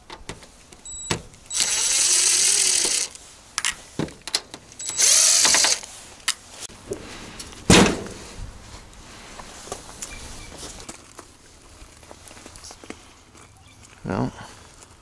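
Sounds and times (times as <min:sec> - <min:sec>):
cordless drill backing out screws: 0:00.9 - 0:05.9.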